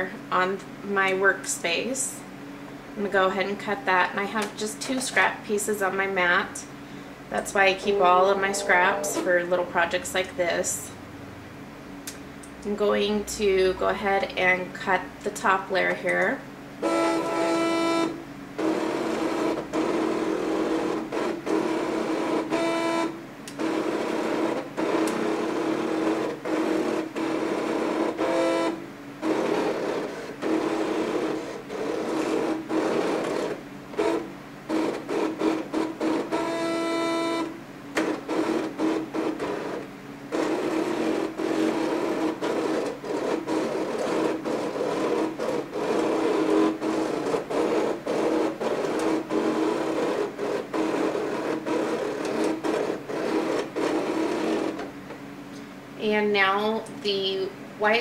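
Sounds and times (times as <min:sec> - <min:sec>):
cutting machine motors whirring: 0:07.6 - 0:09.7, 0:16.1 - 0:54.9.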